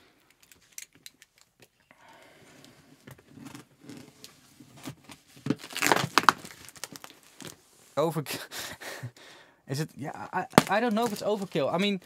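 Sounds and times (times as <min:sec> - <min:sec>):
tape ripping off: 0:03.4 - 0:07.6, 0:10.4 - 0:11.9.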